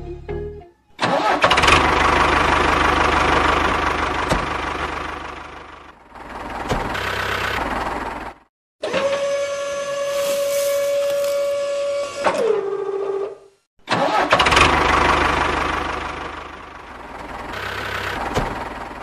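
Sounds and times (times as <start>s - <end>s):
small engine fast-rattling buzz: 8.9s - 11.6s.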